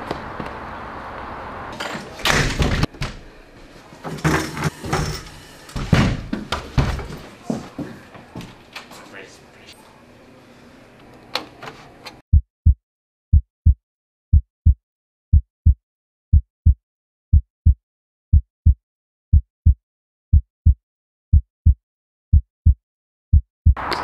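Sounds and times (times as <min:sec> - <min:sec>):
heartbeat thumps: 0:12.3 - 0:23.8.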